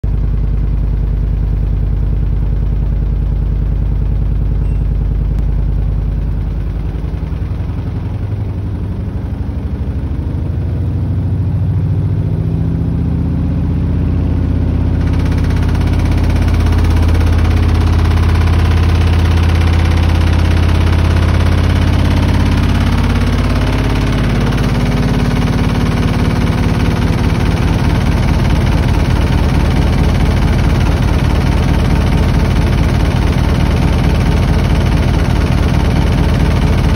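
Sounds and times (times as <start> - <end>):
washing machine spinning: 15.0 - 36.9.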